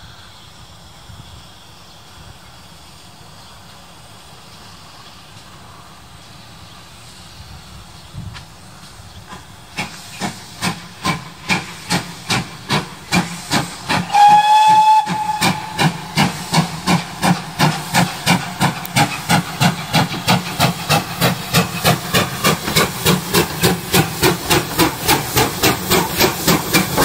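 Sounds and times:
steam locomotive exhaust chuffs: 0.0s - 27.0s
steam whistle blast: 13.9s - 16.8s.

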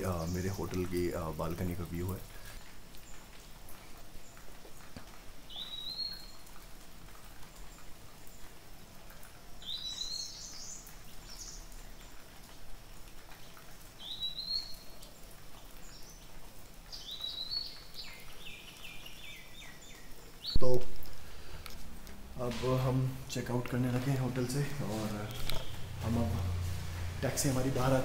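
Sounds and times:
background hiss: 0.0s - 28.0s
songbird calling: 24.4s - 26.2s.

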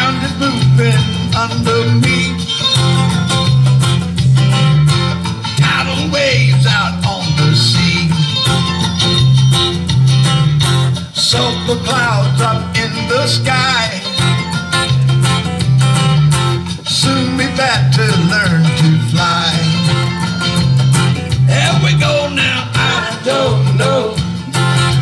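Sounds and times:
person singing: 0.0s - 3.4s, 5.5s - 9.2s, 11.2s - 15.1s, 16.8s - 25.0s
acoustic guitar strumming: 0.0s - 25.0s.

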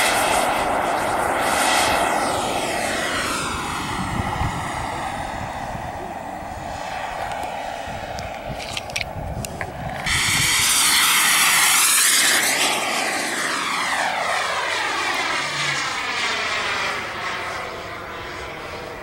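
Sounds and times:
model jet flyby hiss: 0.0s - 19.0s.

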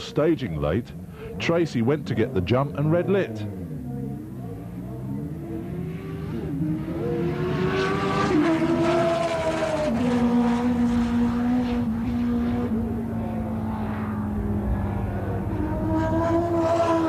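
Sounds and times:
motorcycle accelerating at full throttle: 0.8s - 17.0s.

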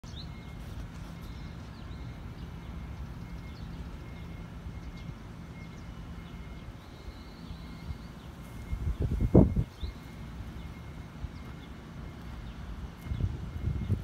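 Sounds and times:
small birds chirping: 0.0s - 14.0s
wind buffeting microphone: 8.6s - 14.0s.

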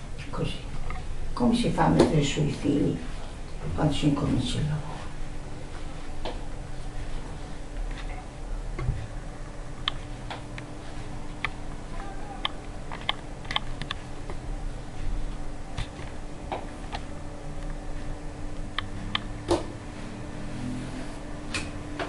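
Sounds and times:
low hum: 0.0s - 22.0s
hands clicking and tapping cords: 11.3s - 14.4s, 15.7s - 18.1s.

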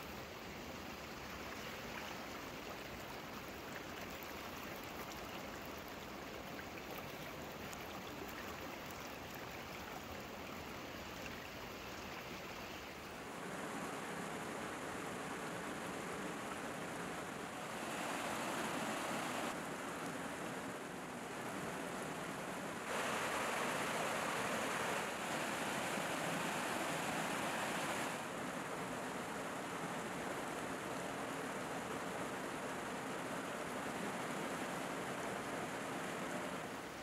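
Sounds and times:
stream flowing over stones: 0.0s - 13.3s, 22.8s - 29.1s.

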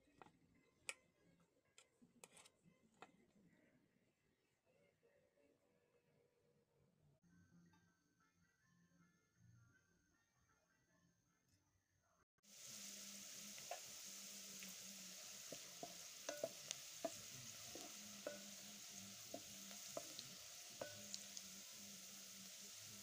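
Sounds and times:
onions sizzling in hot oil: 12.4s - 23.0s
wooden spoon scraping a pot: 12.6s - 23.0s.

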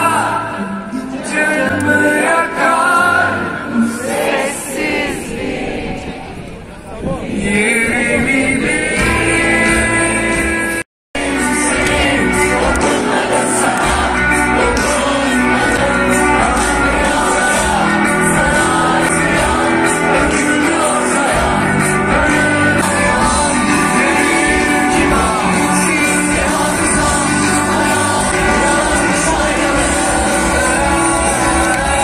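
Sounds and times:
live band with singing: 0.0s - 32.0s.

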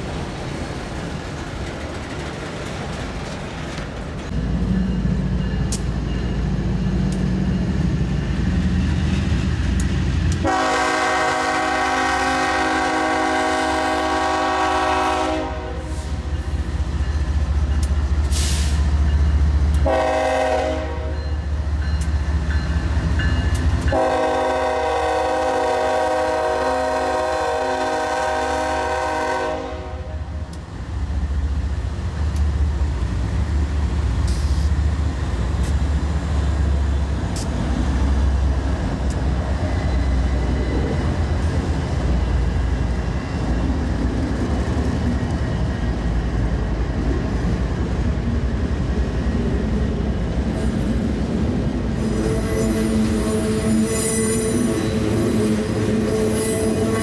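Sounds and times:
locomotive engines rumbling: 0.0s - 57.0s
train air horn blasts: 10.4s - 16.2s, 19.8s - 21.2s, 23.9s - 30.3s, 52.0s - 57.0s.

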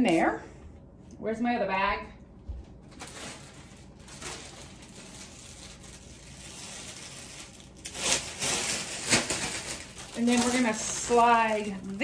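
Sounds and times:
cellophane bag crinkling: 2.8s - 12.0s.

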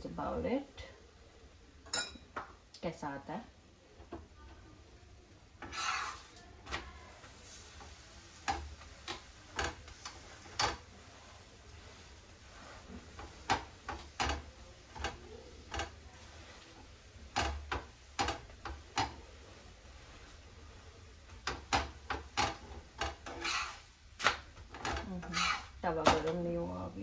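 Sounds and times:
metal spatula scraping griddle: 5.6s - 20.4s, 21.3s - 26.4s.

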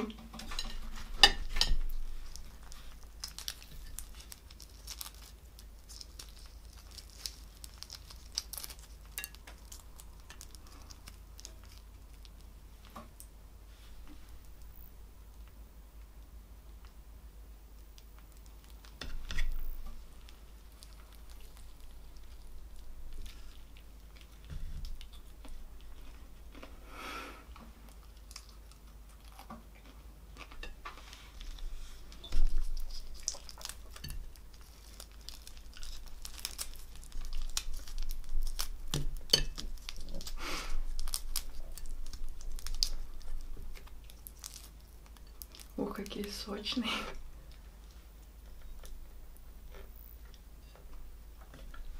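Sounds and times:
prawn shells crackling and tearing: 0.6s - 13.3s, 17.8s - 26.8s, 27.6s - 49.0s
chewing: 27.6s - 45.8s.

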